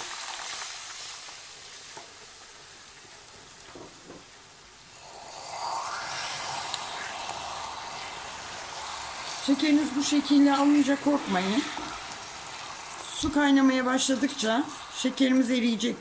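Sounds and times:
sugar sizzling in a pan: 0.0 - 16.0
spatula stirring: 5.4 - 15.6.

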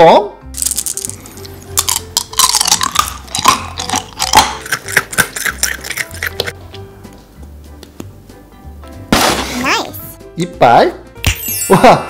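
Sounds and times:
gum chewing: 0.6 - 6.8.

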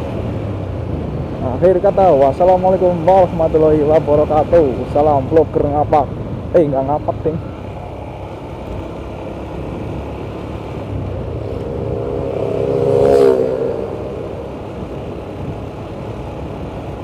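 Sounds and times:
wind and road noise: 0.0 - 17.0
motorcycle engine riding: 5.6 - 17.0
oncoming motorcycle passing by: 9.2 - 16.8.

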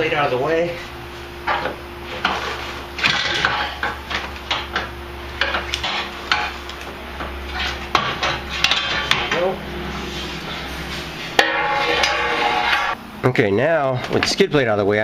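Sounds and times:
metal plate clanking and rattling: 1.5 - 6.5, 7.6 - 9.6, 10.5 - 13.0.

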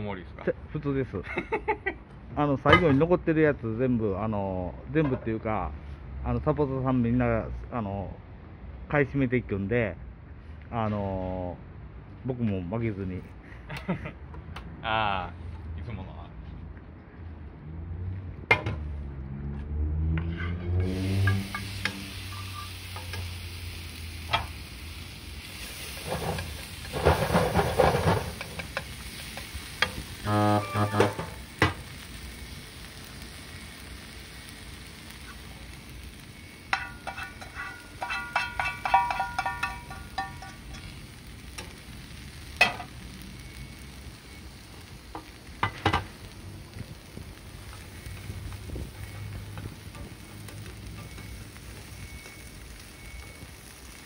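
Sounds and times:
noodles sizzling in frying pans: 20.8 - 54.0
chopsticks scraping pans: 30.3 - 31.4, 36.7 - 40.9.

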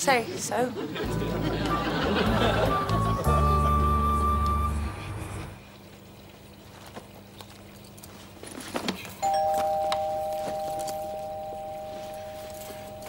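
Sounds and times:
two-tone doorbell chime: 9.2 - 13.0.

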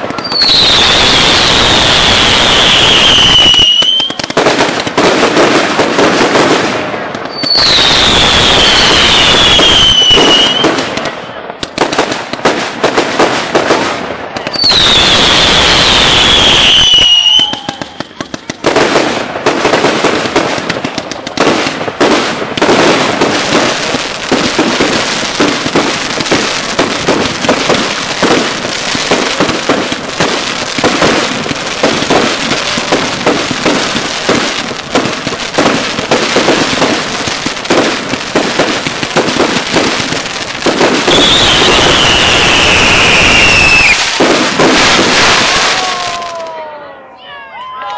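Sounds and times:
falling firework whistle: 0.0 - 4.7, 7.2 - 11.5, 14.4 - 18.8, 39.3 - 47.9
firework hissing rush: 0.0 - 10.8, 14.6 - 46.4
rapid firework shots and crackling: 0.0 - 46.8.

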